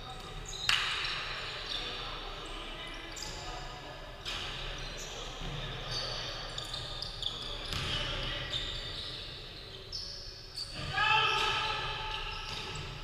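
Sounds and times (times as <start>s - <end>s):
sneakers squeaking on floor: 0.0s - 13.0s.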